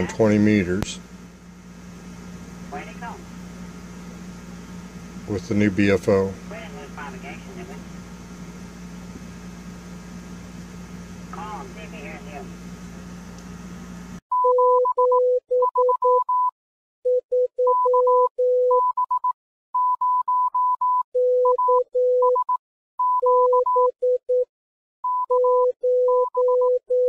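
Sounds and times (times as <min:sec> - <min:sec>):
low hum with radio noise: 0:00.0 - 0:14.2
morse code beeps: 0:14.3 - 0:16.5, 0:17.1 - 0:27.0.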